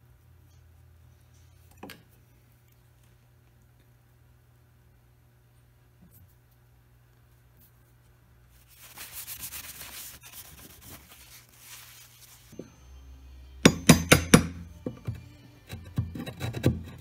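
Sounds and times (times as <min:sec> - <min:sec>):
finger rubbing veneer scraping: 0:08.6 - 0:12.6.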